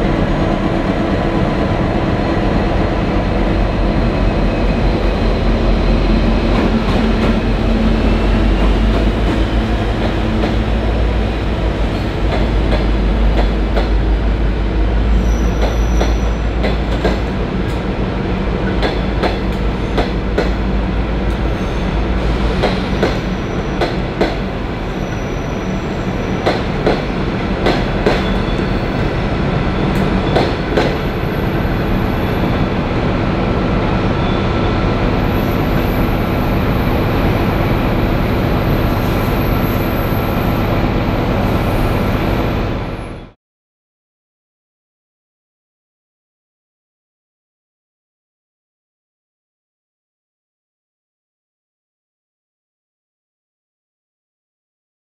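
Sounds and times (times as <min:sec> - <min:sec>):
diesel locomotive engine rumbling: 0:00.0 - 0:43.4
train wheels squealing: 0:15.1 - 0:17.0, 0:21.4 - 0:22.0, 0:22.6 - 0:23.9, 0:24.7 - 0:27.0, 0:28.0 - 0:32.6
train wheels clicking over rail joints: 0:26.4 - 0:28.5.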